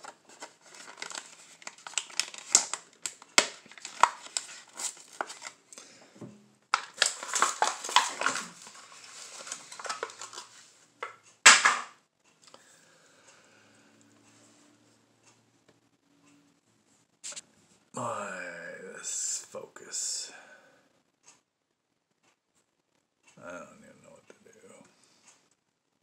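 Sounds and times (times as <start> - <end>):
plastic packaging crinkling: 0.0 - 5.8, 6.7 - 11.7
sharp plastic snap: 11.5 - 12.0.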